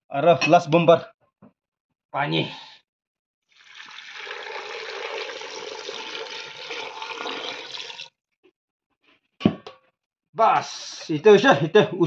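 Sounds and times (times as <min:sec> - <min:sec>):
water pouring into a metal pot: 0:03.5 - 0:08.2.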